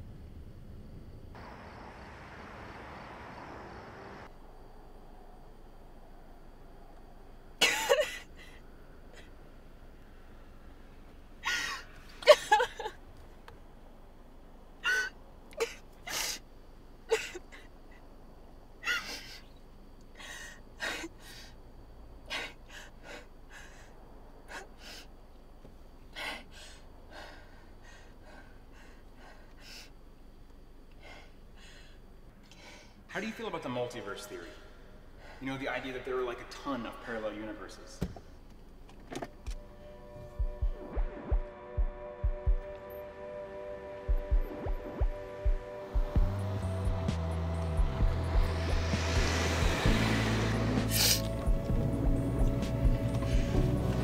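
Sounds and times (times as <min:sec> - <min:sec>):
woman sobbing: 0:07.6 - 0:08.6, 0:11.4 - 0:13.0, 0:14.8 - 0:16.4, 0:17.1 - 0:17.9, 0:18.8 - 0:19.4.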